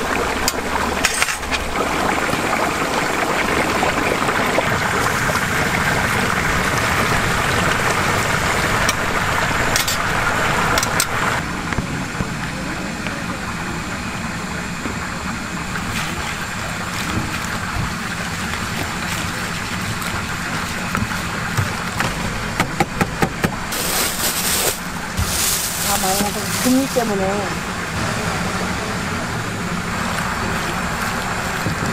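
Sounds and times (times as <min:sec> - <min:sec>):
chicken sizzling in hot oil: 0:23.7 - 0:27.9.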